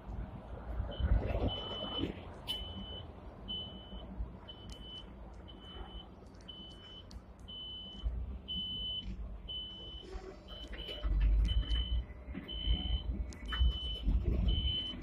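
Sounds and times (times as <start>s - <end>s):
low tram rumble: 0.0s - 4.5s, 8.0s - 15.0s
electronic warning beeps: 0.9s - 15.0s.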